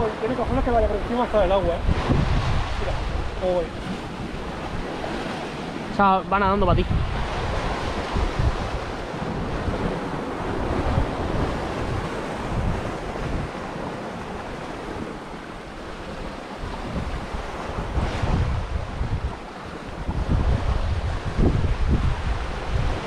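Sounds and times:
sea surf washing: 0.0s - 23.0s
wind buffeting microphone: 0.0s - 23.0s.

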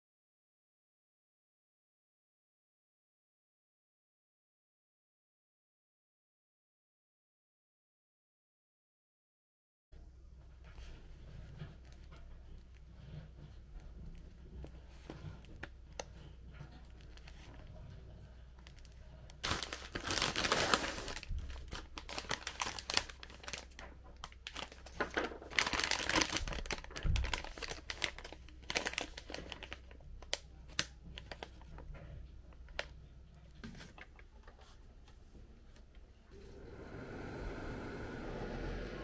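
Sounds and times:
plastic packaging crinkling: 18.6s - 33.0s.

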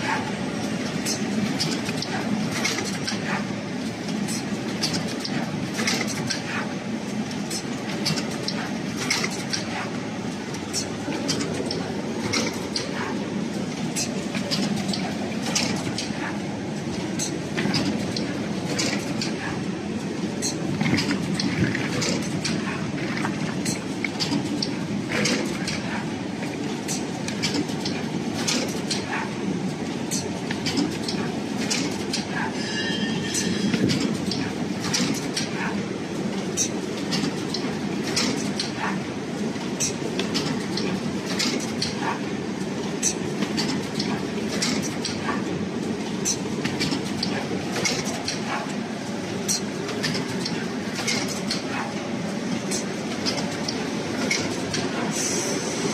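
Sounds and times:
sharp mechanical clicks and clacks: 0.0s - 32.6s, 33.3s - 55.9s.

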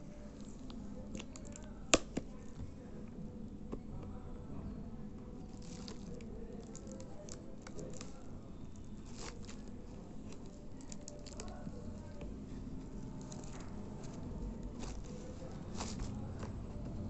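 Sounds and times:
low background hum: 0.0s - 17.0s
plastic wrap crinkling: 5.4s - 12.2s, 13.2s - 16.2s.

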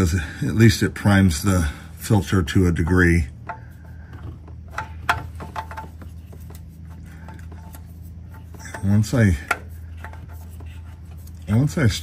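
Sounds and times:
steady low hum: 0.0s - 12.0s
rubbing and clicks of oil filter: 3.4s - 11.8s.

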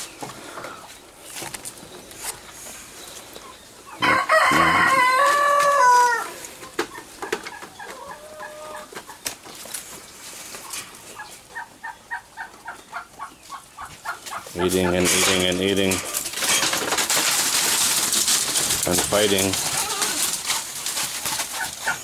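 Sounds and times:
rooster clucking: 3.8s - 9.2s, 11.2s - 16.3s
rooster crowing: 4.0s - 6.4s.

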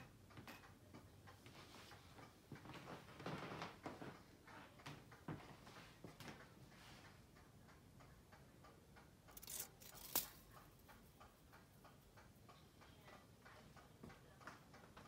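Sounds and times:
faint regular ticking: 3.8s - 15.0s.

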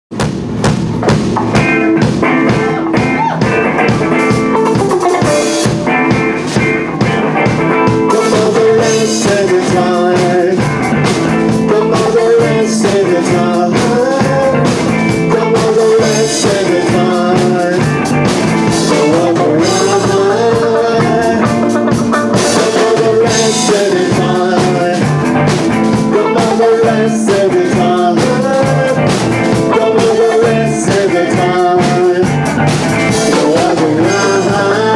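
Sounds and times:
rock band playing live: 0.1s - 34.9s
man singing: 7.7s - 34.9s.

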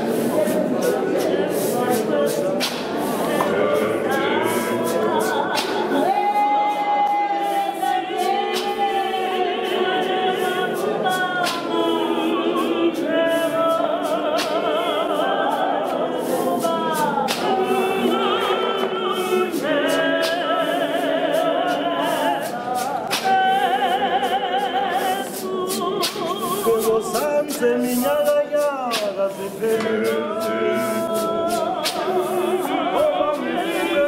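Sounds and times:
congregation singing a hymn: 0.0s - 34.0s.

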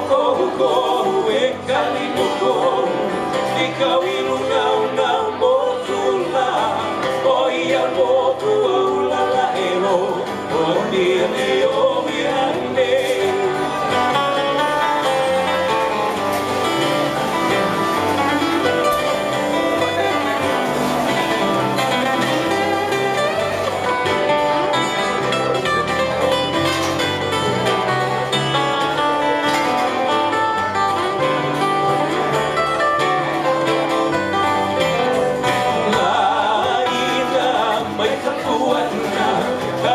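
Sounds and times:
person singing: 0.0s - 25.2s, 34.8s - 39.9s
bass guitar: 0.0s - 39.9s
strummed acoustic guitars: 0.0s - 39.9s.

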